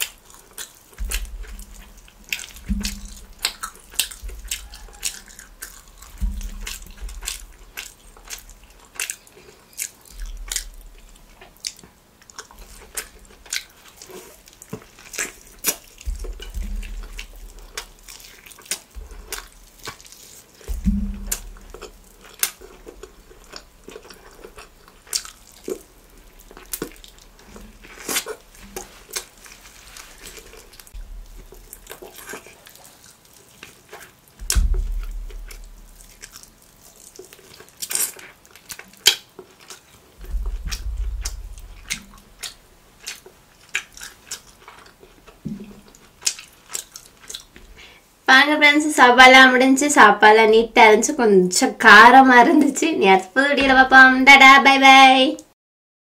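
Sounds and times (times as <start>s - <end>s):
biting and tearing meat: 0.0s - 47.8s
close chewing and mouth smacks: 0.0s - 48.1s
dull low bumps: 1.0s - 8.8s, 10.1s - 11.5s, 15.1s - 18.2s, 20.6s - 32.0s, 34.4s - 36.6s, 40.2s - 43.1s, 45.3s - 46.0s, 53.6s - 54.3s.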